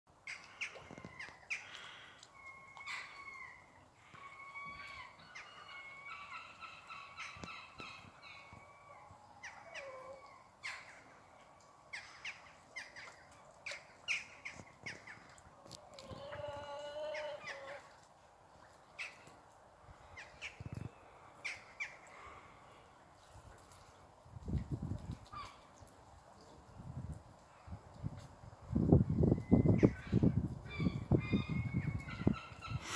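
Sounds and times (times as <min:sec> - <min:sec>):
birds calling: 0:00.2 - 0:11.2, 0:30.7 - 0:32.9.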